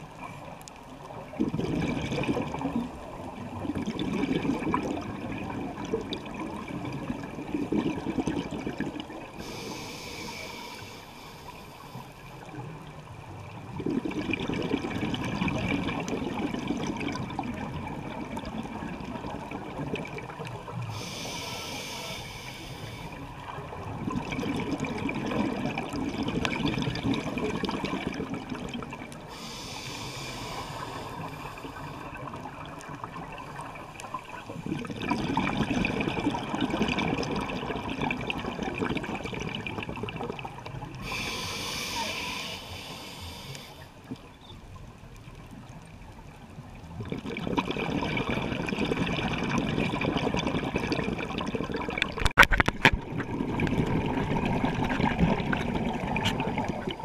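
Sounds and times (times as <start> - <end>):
bubbling underwater exhalations: 1.3 - 9.7, 13.7 - 20.4, 23.9 - 29.5, 34.5 - 42.5, 47.0 - 52.3, 52.9 - 57.0
regulator inhalation hiss: 9.4 - 12.3, 20.9 - 23.3, 29.3 - 32.1, 41.0 - 43.9.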